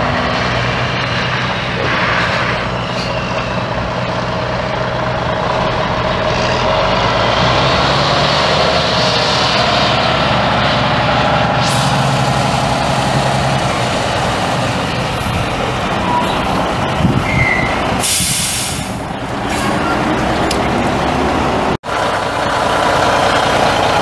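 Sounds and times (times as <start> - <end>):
diesel truck engine running: 0.0 - 24.0
brief hiss: 18.0 - 19.0.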